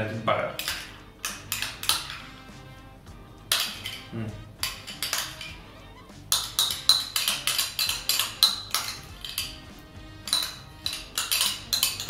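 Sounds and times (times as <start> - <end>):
background music: 0.0 - 12.0
metal spoon scraping cup: 0.6 - 2.2, 3.5 - 5.7, 6.3 - 12.0.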